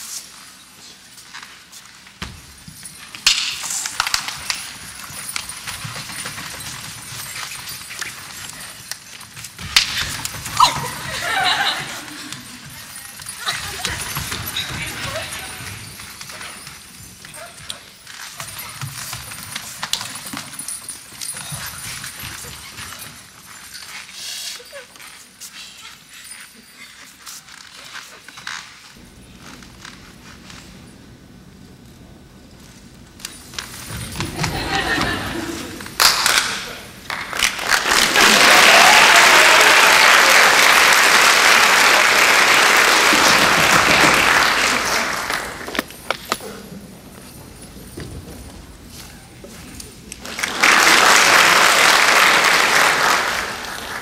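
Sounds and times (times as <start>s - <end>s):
audience applauding: 37.1s - 45.8s, 50.2s - 54.0s.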